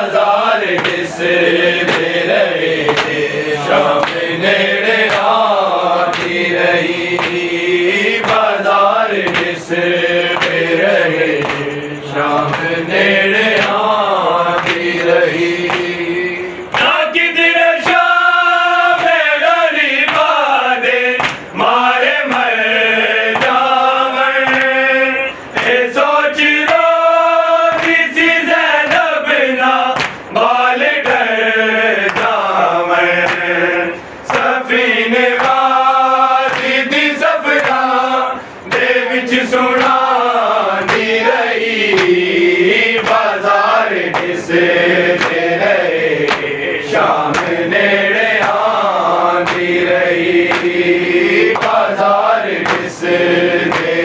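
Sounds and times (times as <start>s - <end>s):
men chanting a lament: 0.0s - 54.0s
hands slapping on chests: 0.6s - 4.3s, 5.0s - 8.5s, 9.2s - 9.7s, 10.3s - 11.8s, 12.4s - 12.8s, 13.5s - 13.8s, 14.5s - 16.0s, 20.0s - 20.3s, 21.2s - 21.5s, 22.3s - 22.5s, 23.3s - 23.7s, 24.4s - 24.8s, 29.9s - 30.2s, 32.0s - 32.4s, 33.2s - 33.5s, 35.3s - 35.7s, 36.4s - 36.8s, 39.7s - 40.1s, 40.7s - 41.2s, 41.8s - 42.3s, 43.0s - 43.4s, 44.0s - 44.4s, 45.2s - 45.5s, 46.2s - 46.5s, 47.2s - 47.7s, 48.4s - 48.8s, 49.4s - 49.8s, 50.4s - 50.8s, 51.5s - 53.0s, 53.6s - 54.0s.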